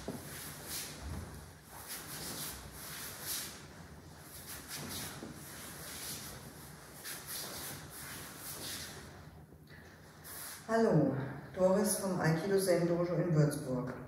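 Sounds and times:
wooden staff swinging: 0.0 - 9.2
fabric rustling swishes: 0.0 - 9.3
bare feet turning on mats: 0.0 - 9.6.

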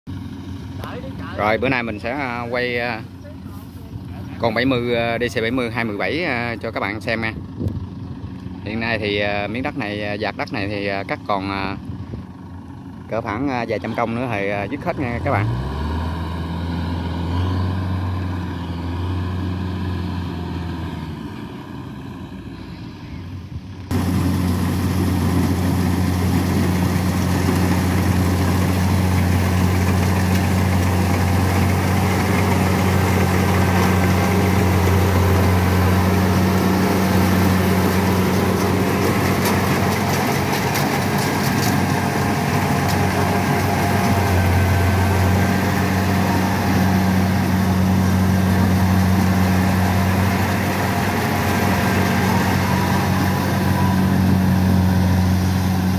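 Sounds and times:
combine harvester engine hum: 0.1 - 55.9
distant engine hum: 0.1 - 55.9
machinery clatter: 23.9 - 55.2.

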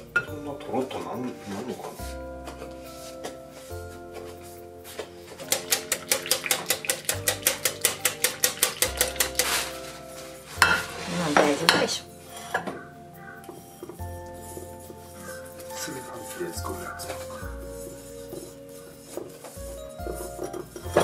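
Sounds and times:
kitchenware clattering: 5.3 - 14.0, 18.4 - 21.0
whisk clinking in glass bowl: 5.4 - 9.9, 10.6 - 12.0, 14.6 - 21.0.

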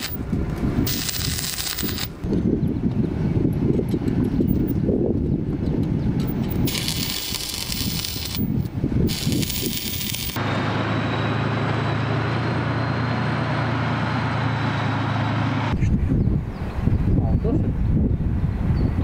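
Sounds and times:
arc welding crackling and hissing: 0.0 - 0.2, 0.8 - 2.1, 6.3 - 10.4
tank engine droning: 9.2 - 15.8.

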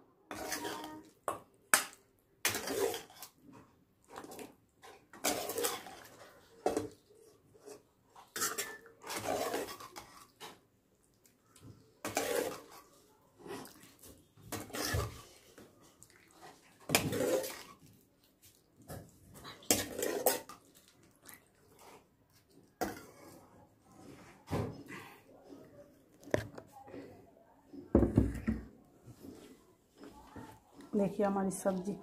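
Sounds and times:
steel ladle scraping a pot: 0.3 - 1.1, 2.5 - 3.4, 4.8 - 6.2, 7.6 - 10.6, 12.0 - 12.9, 14.5 - 15.3.

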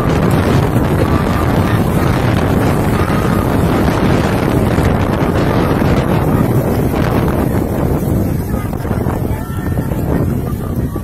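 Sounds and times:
storm wind buffeting microphone: 0.0 - 11.0.

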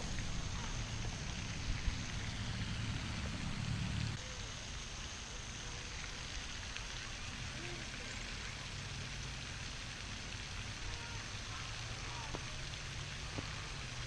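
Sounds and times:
low rumble: 0.0 - 4.2
fountain water splashing: 0.0 - 14.0.

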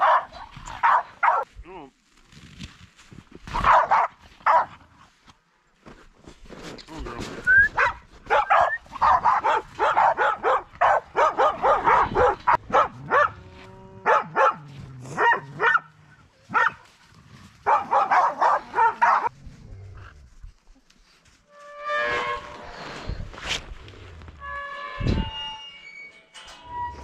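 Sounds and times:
dog barking: 0.0 - 1.5, 3.6 - 4.8, 7.8 - 13.4, 14.0 - 14.6, 15.2 - 15.9, 16.5 - 16.8, 17.6 - 19.3.

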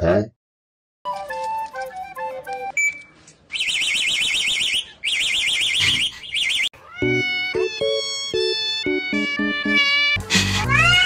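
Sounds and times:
music: 1.1 - 2.8, 7.0 - 11.0
flute-like tune: 1.1 - 3.0, 7.0 - 9.9
car alarm siren warbling: 3.6 - 10.2.

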